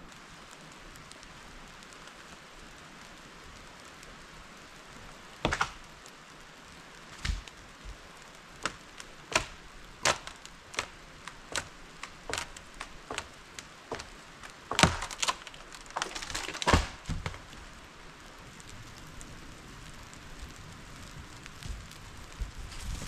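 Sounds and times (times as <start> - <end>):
rain hissing: 0.0 - 23.0
wood cracking and chopping: 5.4 - 6.1, 7.1 - 17.8.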